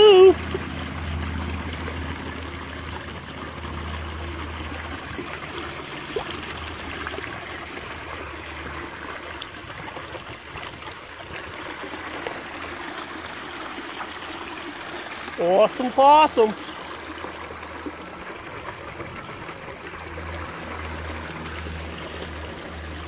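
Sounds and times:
water rushing down sluice box: 0.0 - 23.0.

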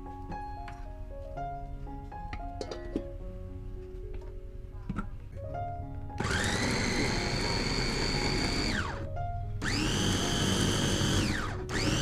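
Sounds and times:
food chopper motor whine: 6.2 - 12.0.

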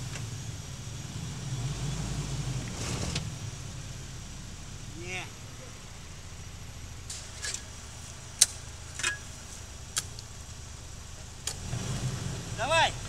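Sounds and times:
vehicle engine idling: 0.0 - 13.0
metallic clicks and clinks: 8.4 - 9.3.

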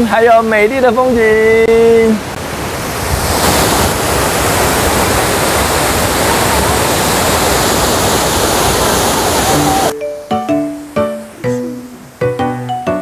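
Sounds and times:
stream rushing over rocks: 1.6 - 10.0.

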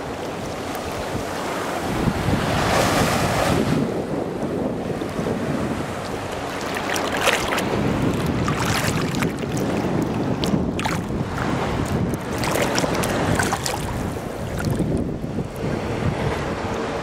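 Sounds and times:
wind buffeting microphone: 0.0 - 17.0
water splashing past boat hull: 5.2 - 16.7.

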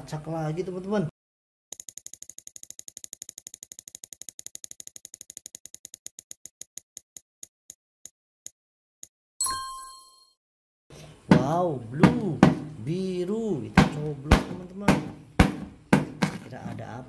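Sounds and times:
spinning wheel ticks: 1.7 - 7.2
bright chime: 9.4 - 10.4.

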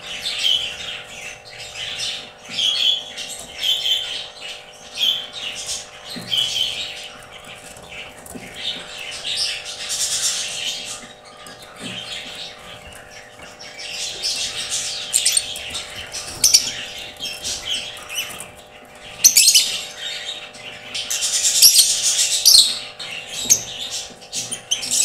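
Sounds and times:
lovebirds chirping: 0.0 - 25.0.

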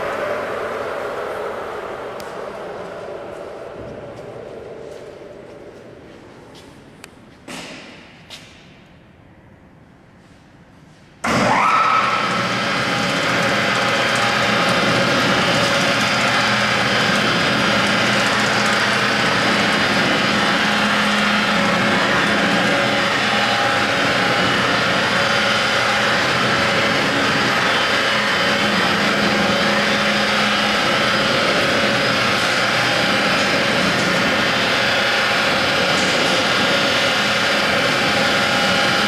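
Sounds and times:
motor and chain drive whirring: 12.0 - 39.0.

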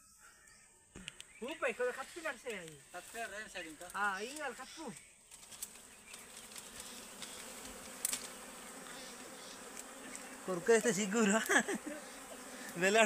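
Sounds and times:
bees buzzing: 3.1 - 13.0.

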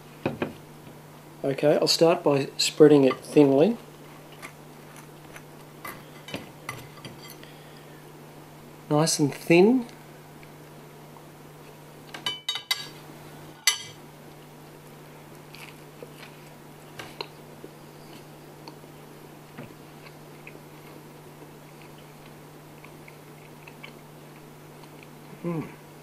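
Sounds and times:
soft chewing: 3.8 - 6.2, 15.2 - 25.8
toast crunching: 4.0 - 6.3, 15.2 - 25.3.

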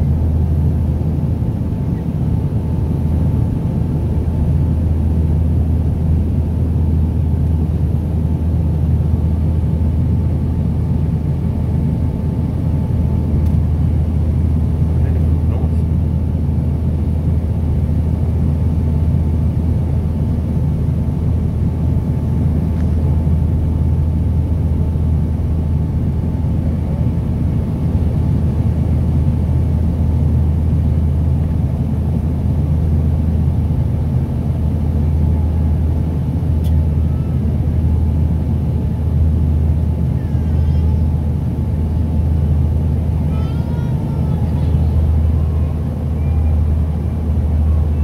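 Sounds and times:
turboprop engines droning: 0.0 - 48.0.

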